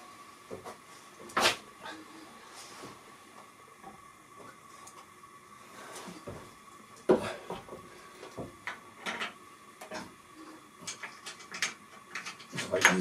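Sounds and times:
tools and metal parts clinking: 0:10.9 - 0:13.0.

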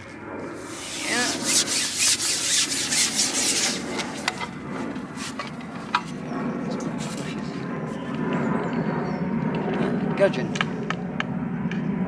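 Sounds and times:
fishing pole sections rubbing: 0:00.6 - 0:06.2, 0:06.9 - 0:07.4.

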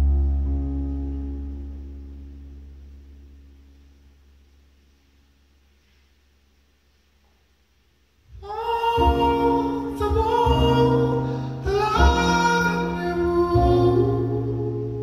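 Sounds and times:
low keyboard chords: 0:00.0 - 0:05.0, 0:08.3 - 0:15.0
man singing in high voice: 0:08.3 - 0:15.0.

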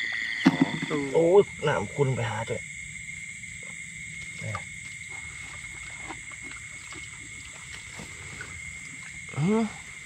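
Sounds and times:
frogs and insects chorus: 0:00.0 - 0:10.0
faint splashes: 0:04.2 - 0:10.0.

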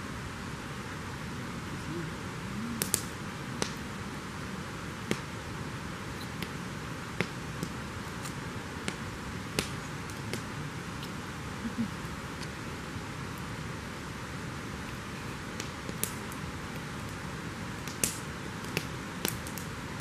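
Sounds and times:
campfire crackling: 0:00.0 - 0:20.0
steady hiss: 0:00.0 - 0:20.0
sharp pops: 0:02.8 - 0:03.8.

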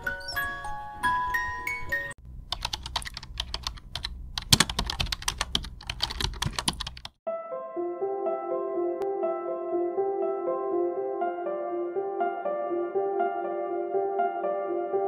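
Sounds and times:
keyboard typing clicks: 0:02.5 - 0:07.2
music with sustained tones: 0:07.3 - 0:15.0.

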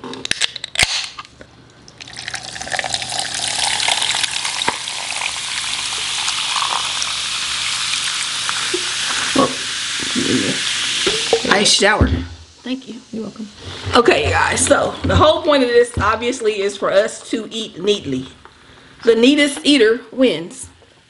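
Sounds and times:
drink pouring over ice: 0:02.0 - 0:11.4
carbonated drink fizzing: 0:02.0 - 0:11.7.

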